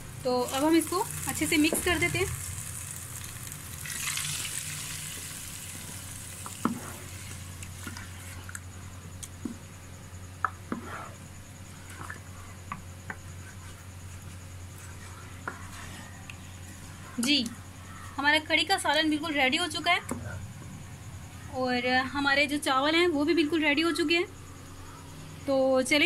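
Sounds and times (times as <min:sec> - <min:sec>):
spices sizzling: 0:00.0 - 0:20.0
spoon stirring in a pot: 0:03.9 - 0:09.7, 0:10.4 - 0:17.5.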